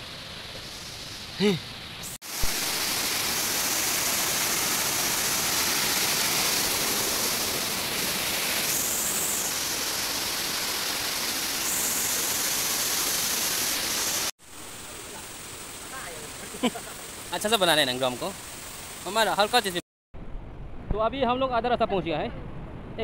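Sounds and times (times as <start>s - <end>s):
stream rushing over rocks: 2.2s - 19.8s.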